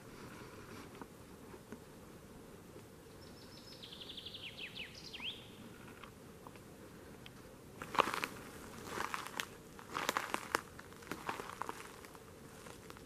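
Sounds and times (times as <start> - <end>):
songbird singing: 2.9 - 6.1
sharp crunch: 7.8 - 13.0.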